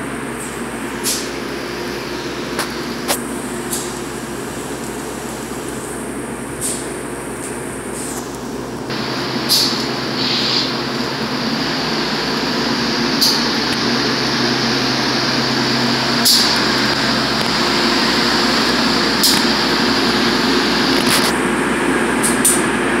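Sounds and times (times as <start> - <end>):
subway car equipment humming: 0.0 - 23.0
short sharp hisses: 9.5 - 10.9.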